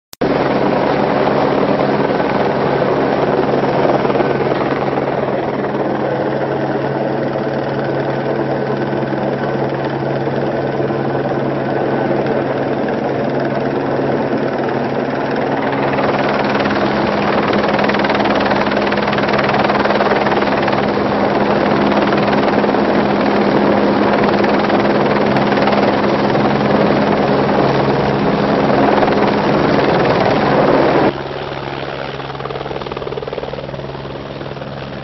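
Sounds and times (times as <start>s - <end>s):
helicopter engine and rotor: 0.2s - 35.0s.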